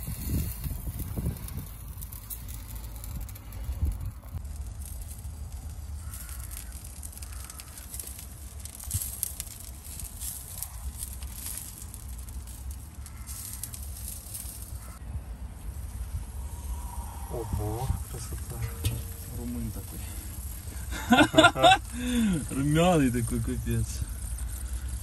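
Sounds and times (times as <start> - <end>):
wind rumble on microphone: 0.0 - 7.5, 8.1 - 20.5
faint crackling: 0.0 - 25.0.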